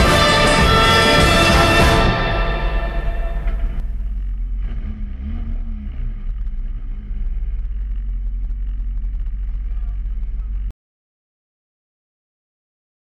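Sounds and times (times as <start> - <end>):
car engine running inside cabin: 2.7 - 10.7.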